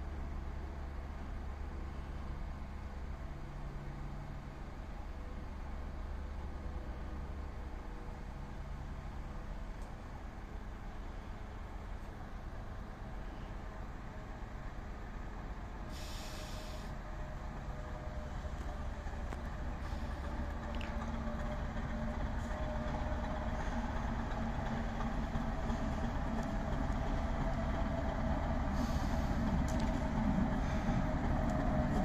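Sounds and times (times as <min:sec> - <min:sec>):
diesel locomotive engine running: 0:00.0 - 0:32.0
short hiss: 0:15.9 - 0:17.0.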